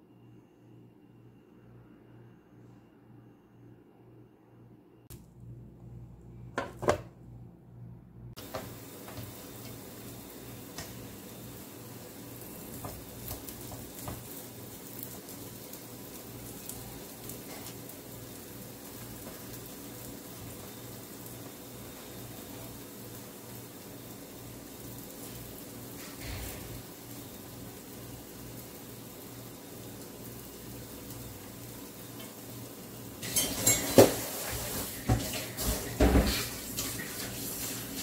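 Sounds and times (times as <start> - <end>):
patties frying in oil: 8.4 - 38.0.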